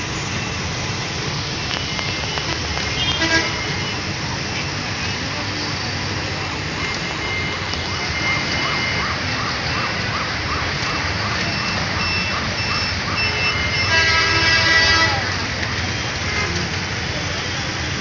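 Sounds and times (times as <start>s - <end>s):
dense road traffic: 0.0s - 18.0s
loud vehicle horn: 2.4s - 3.9s, 13.2s - 15.3s.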